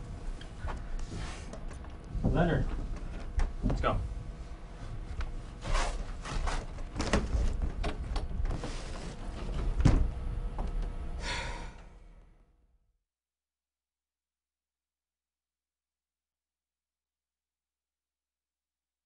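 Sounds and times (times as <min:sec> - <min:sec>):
door knocks and thumps: 0:09.5 - 0:10.2.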